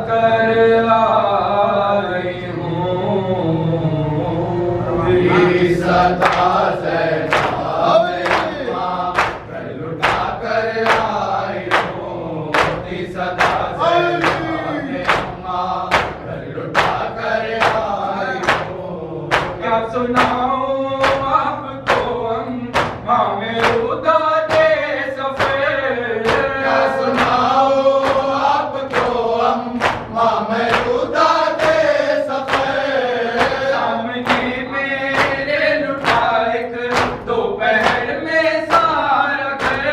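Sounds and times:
men chanting in unison: 0.0 - 39.9
hands slapping chests: 6.2 - 6.6, 7.3 - 16.2, 16.8 - 19.6, 29.8 - 30.1, 30.7 - 31.0, 33.4 - 34.5, 35.1 - 36.3.

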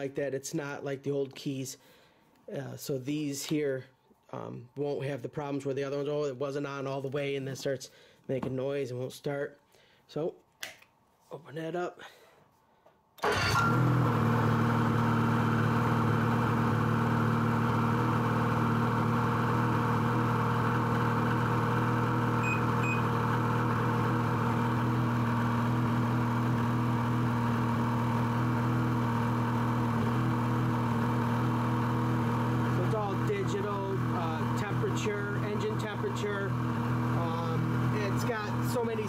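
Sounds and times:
snowmobile engine starting and idling: 13.2 - 39.0.

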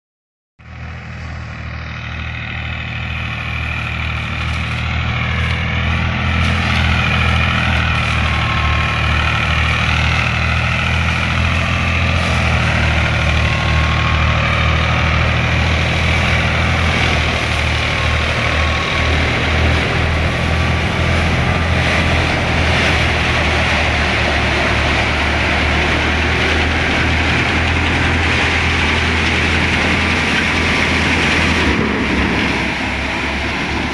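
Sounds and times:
thresher engine humming under load: 0.6 - 33.9
high wavering machine whine: 3.2 - 10.8.

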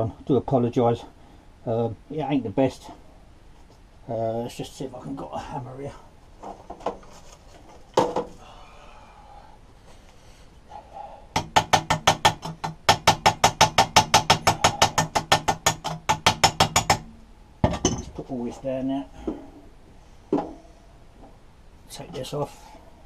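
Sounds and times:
hammer tapping on metal: 11.3 - 18.1.

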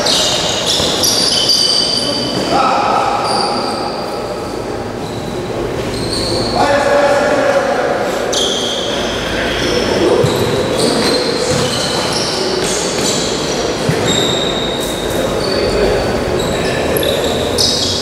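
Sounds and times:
sneakers squeaking on court: 0.0 - 2.6, 4.9 - 6.6, 8.3 - 18.0
players calling out: 0.0 - 18.0.

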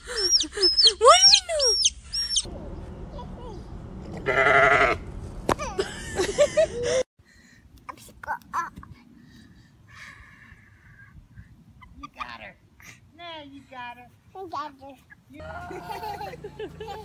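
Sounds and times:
sheep bleating: 4.2 - 5.0.

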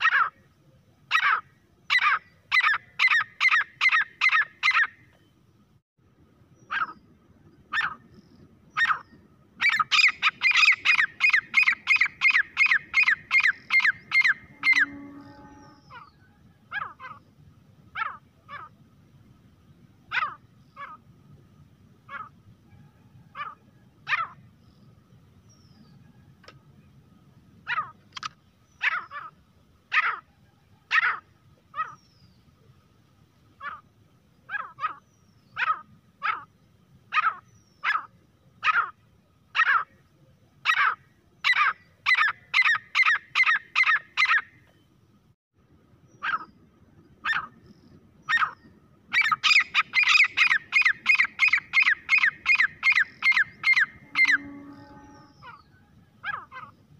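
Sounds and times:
francolin calling: 1.1 - 5.0, 7.7 - 17.3, 40.6 - 44.8, 46.1 - 56.9.

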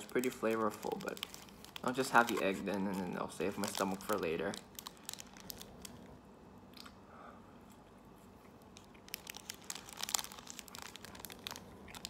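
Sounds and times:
plastic wrapper crinkling: 0.0 - 6.1, 8.6 - 12.0.

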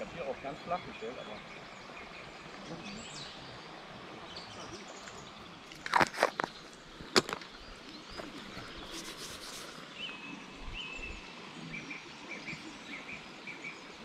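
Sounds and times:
brief rustling: 5.8 - 7.5, 8.2 - 9.8.

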